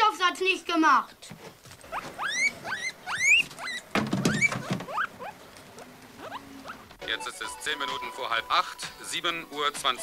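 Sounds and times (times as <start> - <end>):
guinea pig squealing: 1.8 - 8.4.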